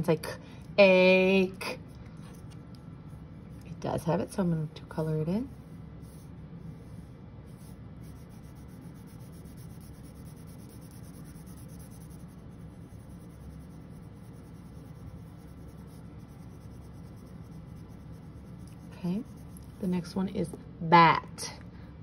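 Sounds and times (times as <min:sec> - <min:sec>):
crayon scribbling on paper: 0:05.4 - 0:20.0.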